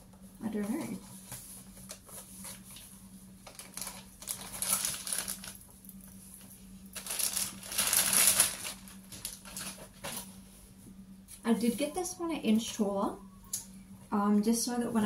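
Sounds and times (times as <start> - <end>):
plastic wrapping crinkling: 3.4 - 10.2.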